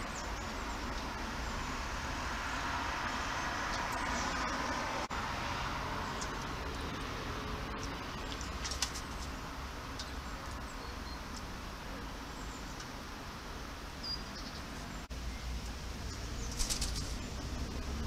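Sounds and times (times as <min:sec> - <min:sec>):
distant traffic rumble: 0:00.0 - 0:18.0
dove wings flapping: 0:08.6 - 0:09.4, 0:16.5 - 0:17.2.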